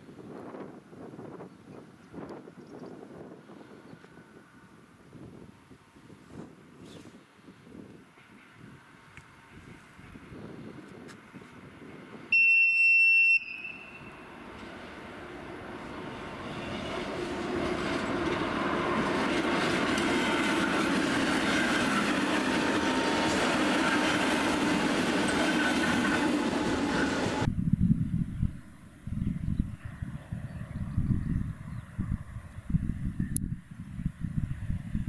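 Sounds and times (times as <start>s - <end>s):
high-pitched train warning horn: 12.3s - 14.5s
electric train running noise: 13.4s - 27.5s.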